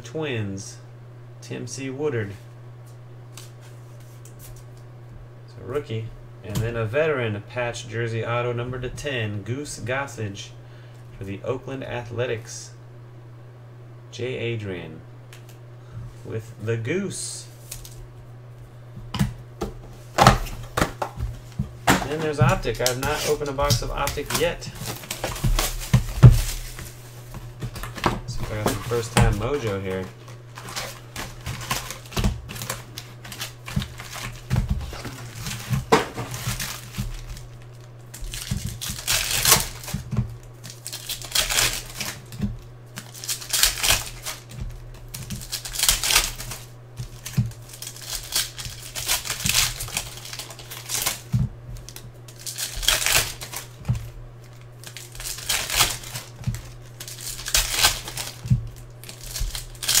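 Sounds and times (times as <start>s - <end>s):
steady low hum: 0.0s - 60.0s
foil wrappers crinkling and tearing: 17.6s - 18.0s, 19.9s - 60.0s.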